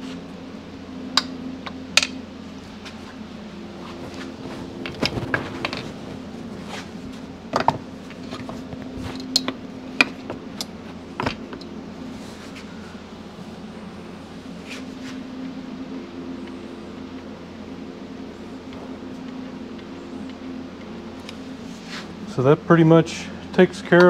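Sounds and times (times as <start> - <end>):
steady low hum: 0.0 - 24.0
knocks and clicks of metal parts: 1.2 - 2.2, 7.5 - 11.7.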